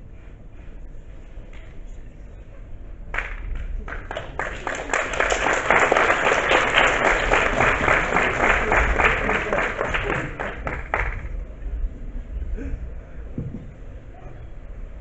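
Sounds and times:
audience applauding: 0:03.1 - 0:11.4.

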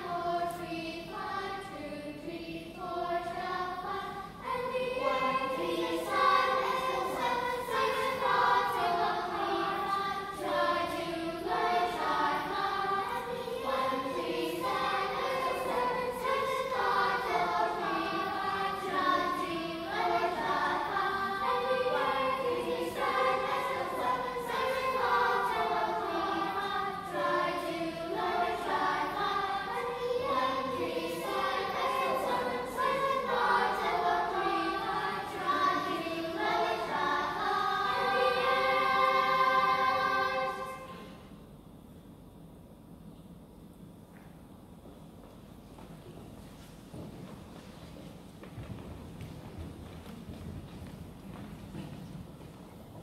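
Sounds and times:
children's choir singing: 0:00.0 - 0:41.4.

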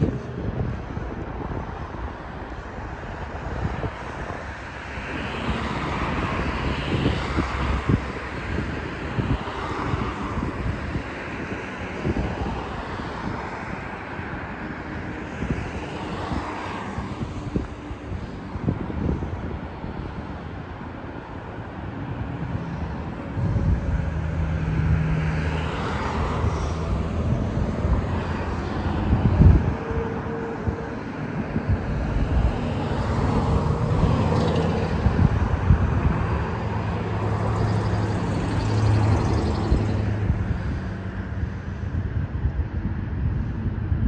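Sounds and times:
cars driving past: 0:00.0 - 0:44.0.

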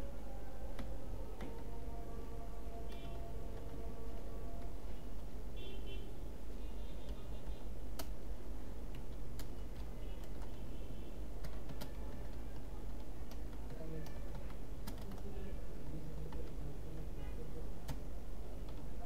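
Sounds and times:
computer keyboard key clicks: 0:08.0 - 0:08.2, 0:08.9 - 0:10.6, 0:11.4 - 0:15.3.

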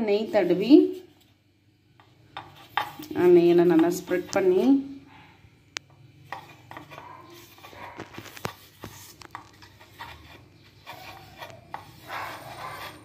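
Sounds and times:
fingers rubbing metal plate: 0:09.6 - 0:13.0.

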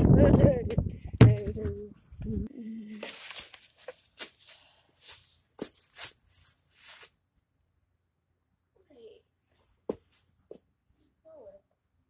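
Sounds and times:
dry leaves rustling and crunching: 0:02.9 - 0:07.2.

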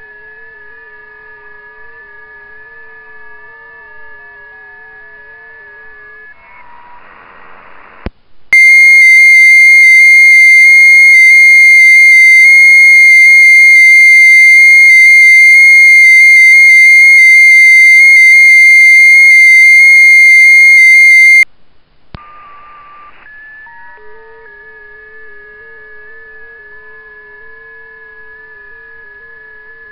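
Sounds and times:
receiver hiss: 0:05.8 - 0:21.4
steady radio data tone: 0:05.9 - 0:21.4.

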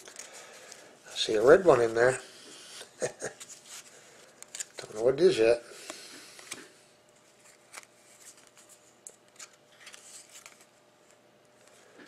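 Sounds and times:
trading cards clicking and rustling: 0:03.4 - 0:05.0, 0:07.4 - 0:11.8.

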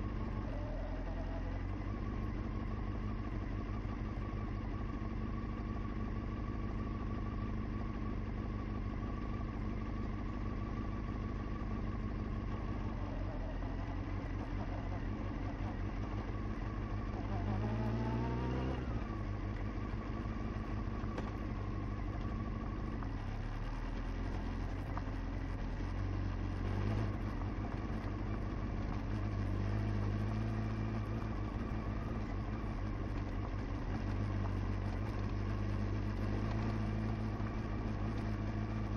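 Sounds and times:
motorcycle engine running: 0:00.0 - 0:38.9
motorcycle engine rev: 0:10.7 - 0:38.9.

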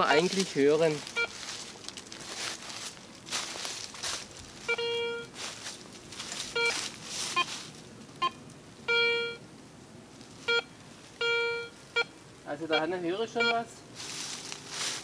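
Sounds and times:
dry leaves rustling underfoot: 0:00.0 - 0:08.7, 0:10.1 - 0:11.2, 0:13.9 - 0:15.0
metal detector beeping: 0:00.9 - 0:01.4, 0:04.6 - 0:05.4, 0:06.4 - 0:07.6, 0:08.2 - 0:09.4, 0:10.4 - 0:12.1, 0:12.7 - 0:13.7.

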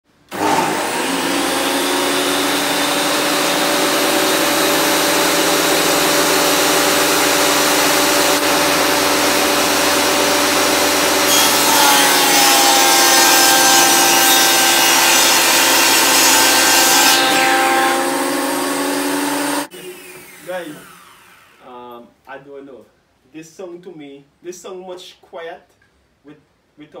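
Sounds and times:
electric motor whine: 0:00.3 - 0:11.7, 0:17.4 - 0:21.6
machine cutting board: 0:00.3 - 0:21.6.

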